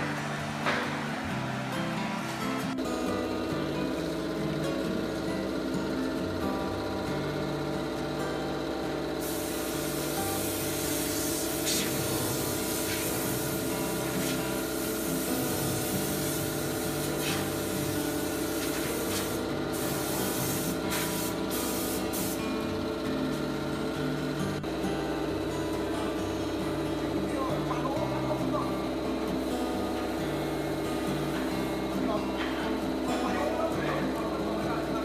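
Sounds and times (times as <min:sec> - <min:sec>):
background music: 0:00.0 - 0:09.0
spraying hiss: 0:09.2 - 0:22.5.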